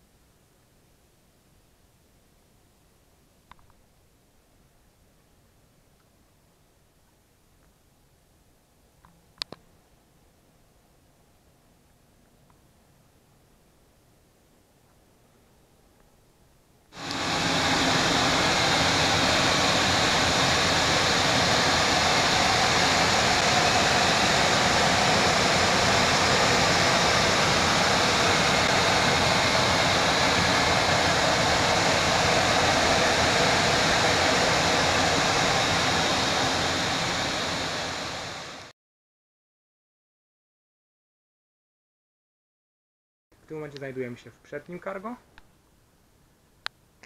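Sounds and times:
cooling fans rushing: 17.0 - 38.7.

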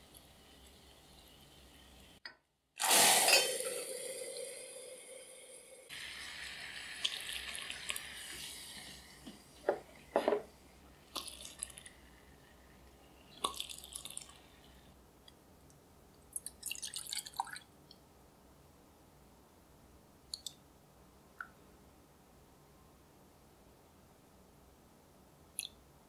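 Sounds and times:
hot caramel pouring hiss: 2.8 - 10.1.

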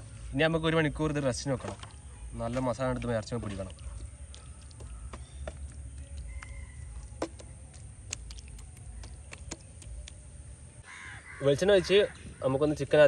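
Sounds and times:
hands squishing meat in marinade: 0.7 - 10.6.

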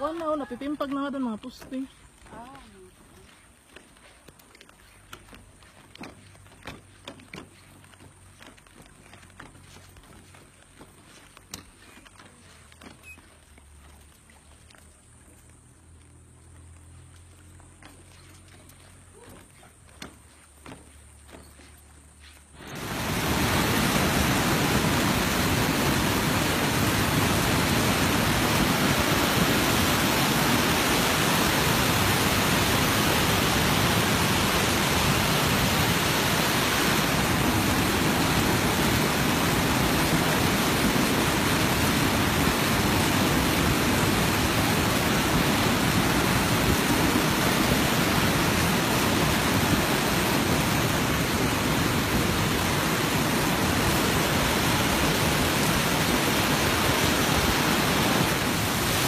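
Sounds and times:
waterfall rushing: 22.6 - 59.0.

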